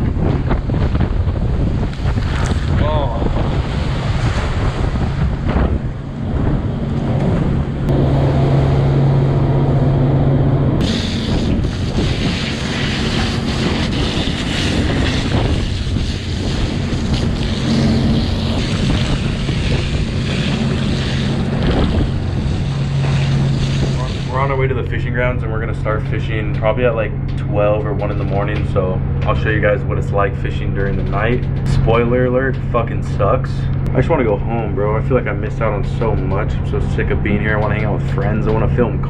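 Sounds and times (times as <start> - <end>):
boat engine humming: 0.0 - 39.0
hose spraying water on deck: 10.8 - 26.0.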